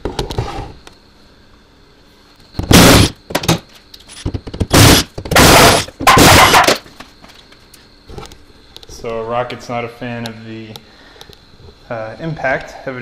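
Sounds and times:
impact driver hammering: 2.6s - 3.6s, 4.6s - 6.7s.

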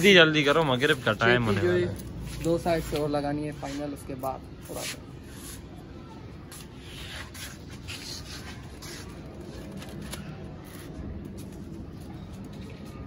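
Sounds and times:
paper rustling and crinkling: 6.5s - 13.0s.

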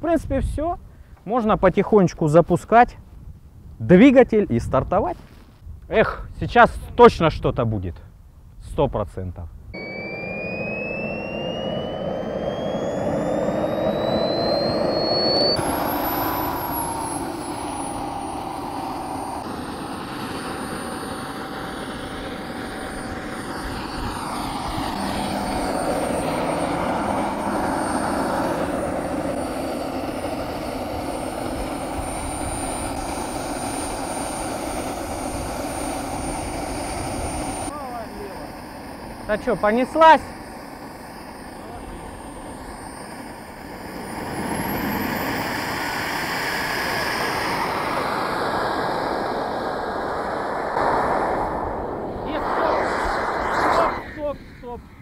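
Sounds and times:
model jet turbine whine: 9.5s - 55.0s.

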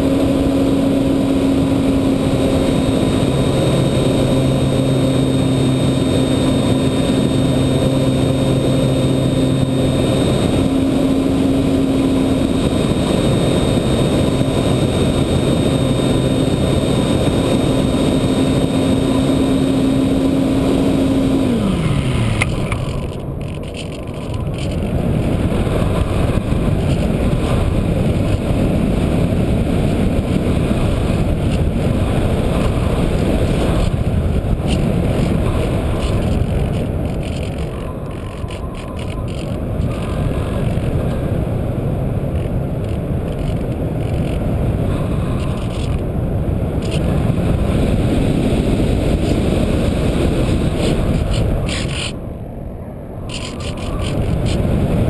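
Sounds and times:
wind rushing over microphone: 0.0s - 55.0s.

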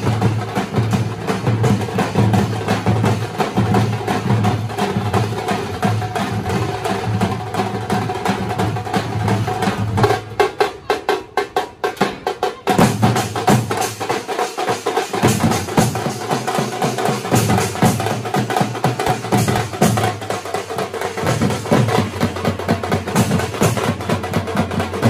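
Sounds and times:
sharp drum strikes: 15.1s - 25.0s.

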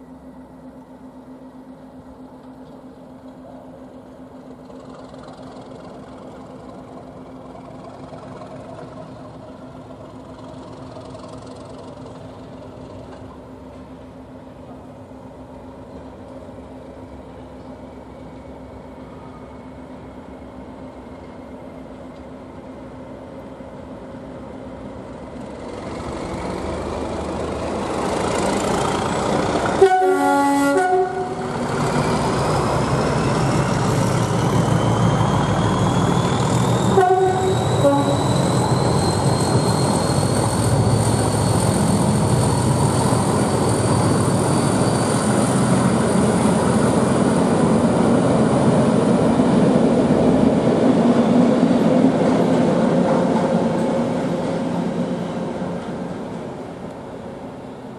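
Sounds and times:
diesel locomotive engine whining: 0.0s - 57.9s
two-note train horn: 29.7s - 31.6s, 36.9s - 38.3s.

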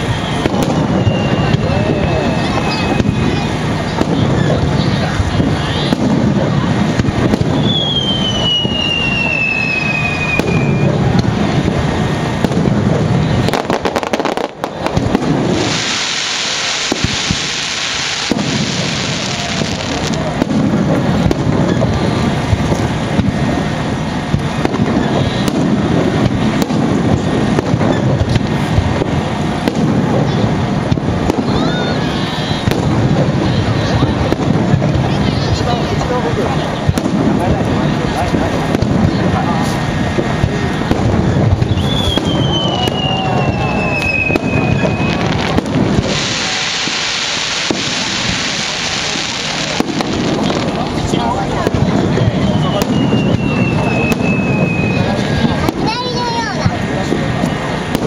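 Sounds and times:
whistling firework shell: 0.0s - 11.6s, 12.4s - 23.4s, 24.2s - 34.4s, 38.7s - 56.0s
firework shells bursting: 0.0s - 58.0s
high hiss: 13.2s - 21.2s, 41.7s - 58.0s.

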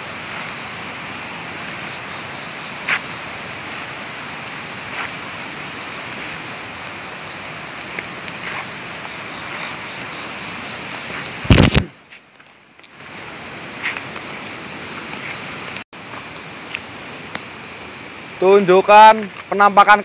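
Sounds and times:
river water rushing: 0.0s - 11.5s
loud crackling burst: 10.8s - 12.0s.

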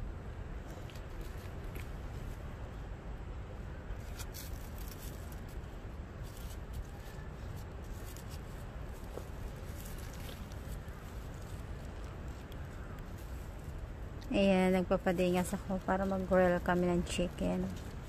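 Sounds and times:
paper burning crackles: 4.0s - 18.0s.

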